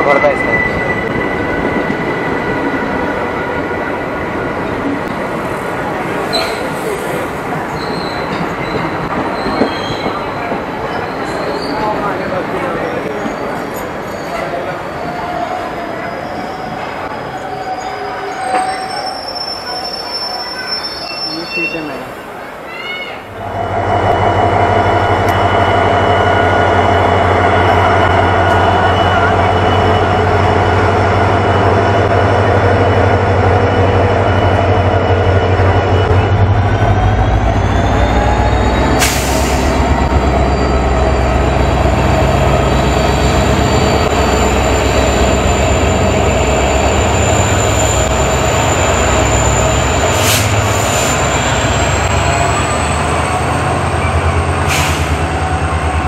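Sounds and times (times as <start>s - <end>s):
train coaches rolling by: 0.0s - 56.0s
diesel locomotive engine drone: 23.2s - 56.0s.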